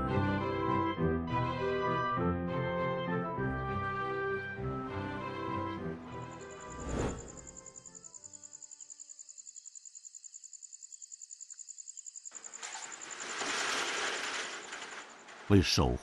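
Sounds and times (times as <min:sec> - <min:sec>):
background music: 0:00.0 - 0:08.2
cricket chirping: 0:06.1 - 0:15.4
rushing noise: 0:06.5 - 0:07.6.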